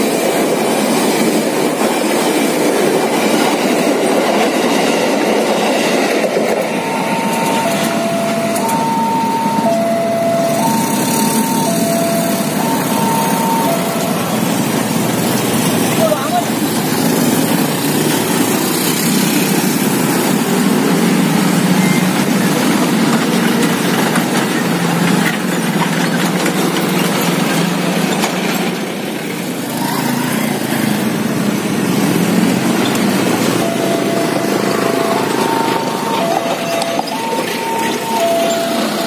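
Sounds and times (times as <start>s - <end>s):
truck passing: 5.3s - 39.0s
two-pitch electronic tone: 6.7s - 14.5s, 33.6s - 39.0s.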